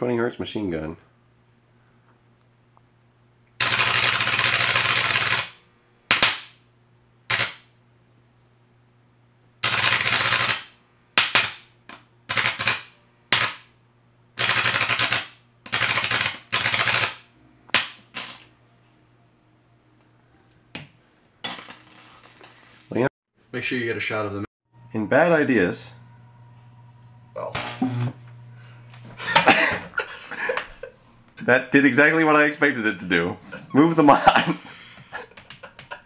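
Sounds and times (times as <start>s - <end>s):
high-voltage arc buzzing: 3.6s - 6.6s, 7.3s - 7.8s, 9.6s - 11.7s, 12.3s - 13.8s, 14.4s - 18.5s, 24.9s - 29.5s.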